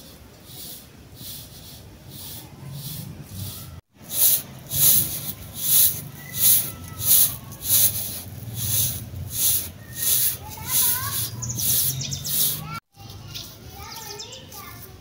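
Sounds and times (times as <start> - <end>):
seeds rattling on metal tray: 4.0 - 12.6.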